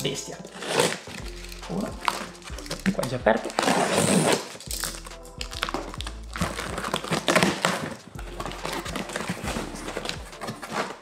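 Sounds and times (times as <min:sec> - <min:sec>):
background music: 0:00.0 - 0:11.0
cardboard box rustling and scraping: 0:06.4 - 0:11.0.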